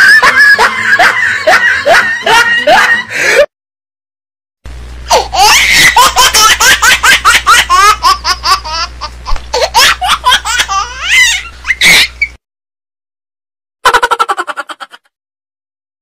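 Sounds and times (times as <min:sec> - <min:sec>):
high-pitched laughter: 0:00.0 - 0:03.1, 0:05.1 - 0:12.4, 0:13.8 - 0:15.1
steady low hum: 0:04.7 - 0:11.7.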